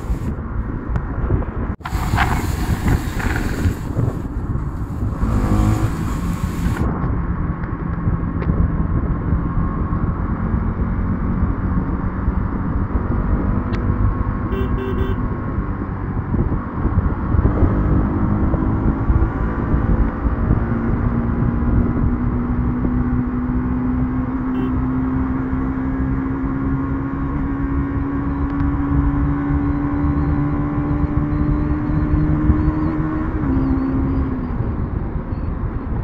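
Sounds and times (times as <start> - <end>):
wind rumble on microphone: 0.0 - 36.0
motorcycle engine: 4.6 - 6.9.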